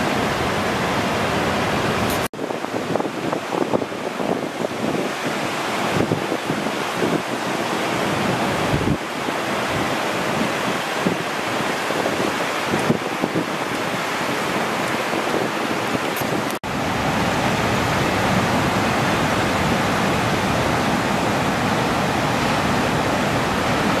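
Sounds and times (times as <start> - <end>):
ocean surf breaking: 0.0 - 24.0
wind buffeting microphone: 0.0 - 24.0.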